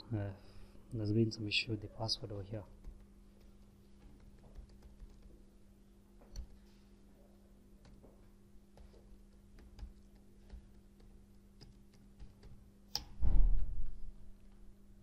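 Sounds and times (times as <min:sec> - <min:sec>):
steady low hum: 0:00.0 - 0:15.0
low rumbling thump: 0:13.2 - 0:14.1.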